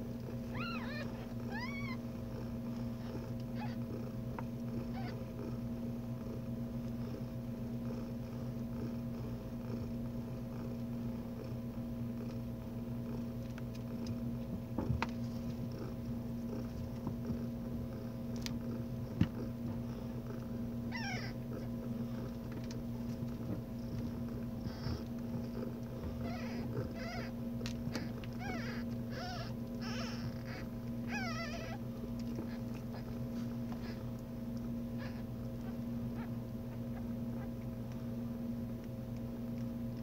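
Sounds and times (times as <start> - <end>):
steady low hum: 0.0 - 40.0
kittens mewing: 0.3 - 2.1, 3.0 - 3.9, 4.8 - 5.2, 20.8 - 21.8, 24.6 - 25.1, 26.0 - 33.1, 34.9 - 37.7.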